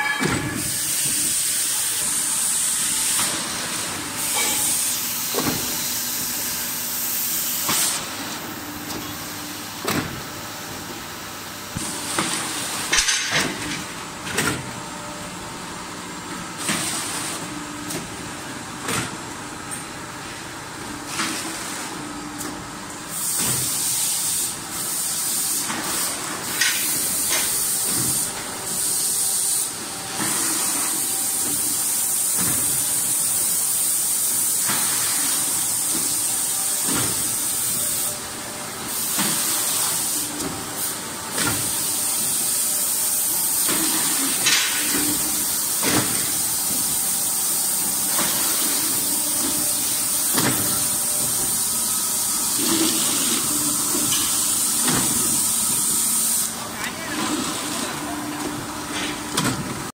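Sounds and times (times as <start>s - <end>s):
machine hissing: 0.0s - 9.3s, 23.1s - 59.1s.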